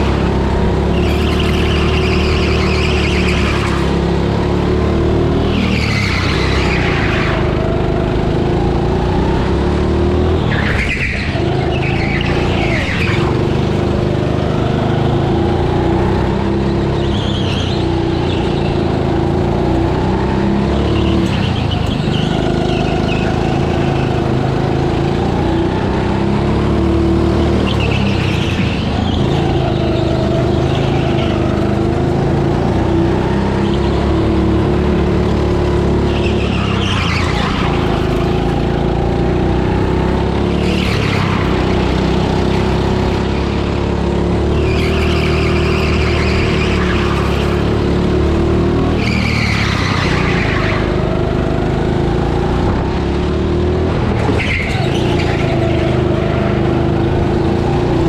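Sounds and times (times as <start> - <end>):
go-kart motor running: 0.0 - 58.0
tyre squeal: 0.3 - 4.1, 5.4 - 7.6, 10.2 - 13.4, 16.8 - 18.9, 20.7 - 24.4, 27.2 - 31.8, 35.8 - 38.8, 40.6 - 43.6, 44.4 - 48.0, 48.8 - 51.2, 54.2 - 58.0.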